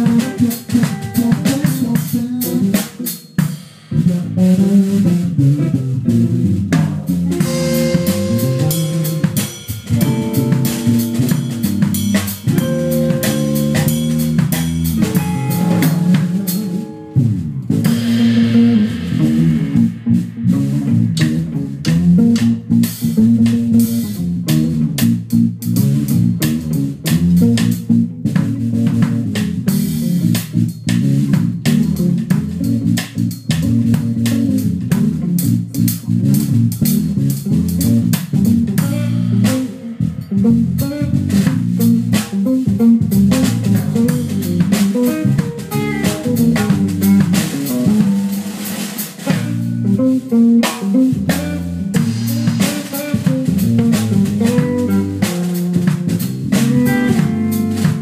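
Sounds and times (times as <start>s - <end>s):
walking bass line: 0.0s - 2.8s, 3.9s - 58.0s
busy drumming: 0.0s - 58.0s
guitar: 0.0s - 58.0s
cymbal strikes: 7.4s - 17.2s, 17.9s - 21.0s.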